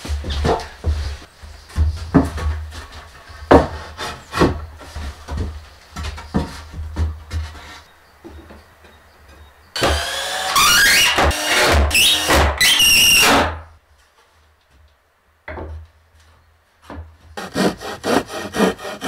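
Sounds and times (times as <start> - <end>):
wooden boards knocking and thudding: 0.0 - 8.7, 15.5 - 15.9.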